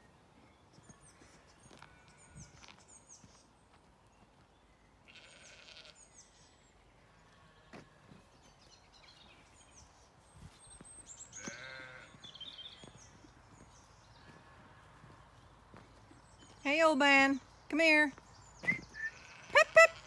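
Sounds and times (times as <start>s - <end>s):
sheep bleating: 5.1s - 6.1s, 11.4s - 12.3s, 19.0s - 20.0s.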